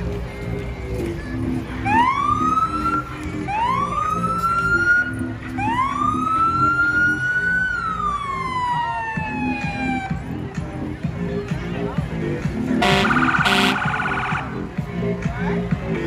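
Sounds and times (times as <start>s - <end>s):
music: 0.0s - 16.0s
vehicle siren whooping: 1.8s - 10.2s, 12.8s - 14.6s.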